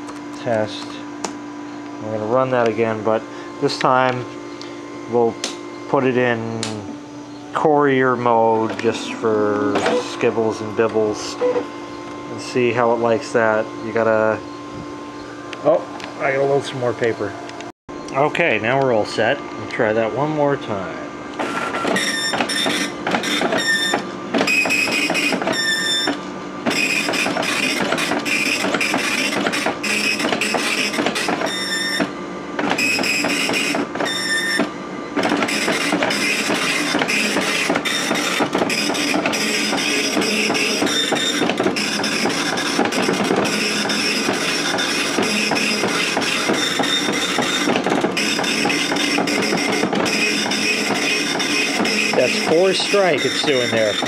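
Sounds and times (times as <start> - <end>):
dot matrix printer buzzing: 0.0 - 15.3, 18.4 - 54.0.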